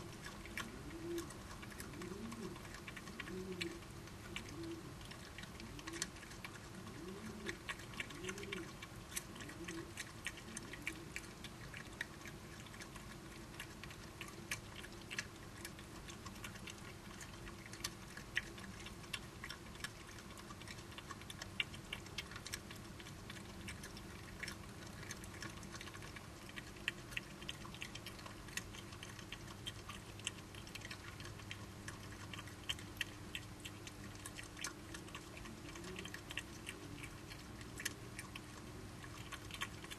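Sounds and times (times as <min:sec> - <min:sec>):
badgers chewing crunchily: 0:00.0 - 0:39.9.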